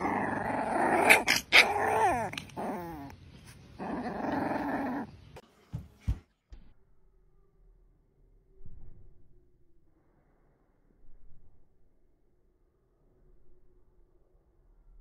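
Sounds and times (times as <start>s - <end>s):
puppy growling: 0.0s - 5.4s
puppy whining: 0.0s - 5.4s.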